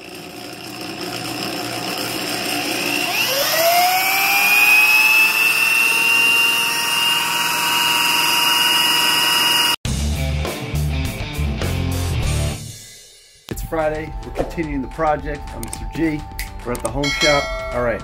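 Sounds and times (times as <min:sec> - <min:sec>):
electric drill whine: 0:00.0 - 0:09.8.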